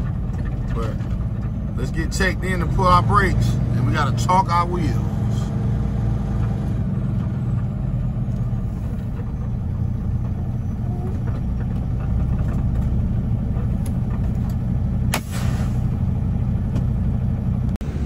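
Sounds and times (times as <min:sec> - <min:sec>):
diesel engine idling: 0:00.0 - 0:18.0
air brake hiss: 0:15.1 - 0:15.9.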